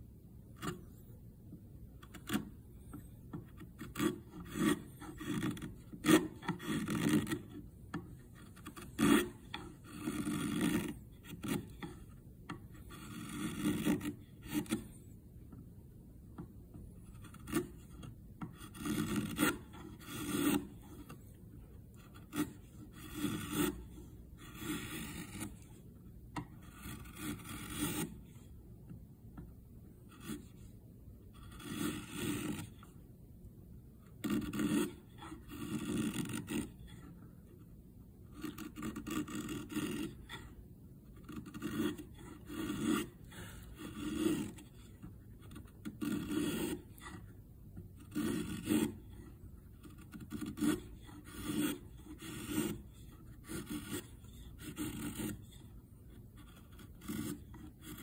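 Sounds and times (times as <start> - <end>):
chisel paring wood: 2.0 - 14.9, 16.4 - 21.1, 22.0 - 23.8, 24.4 - 25.7, 26.3 - 28.1, 41.2 - 47.2, 48.1 - 49.0, 49.8 - 55.4.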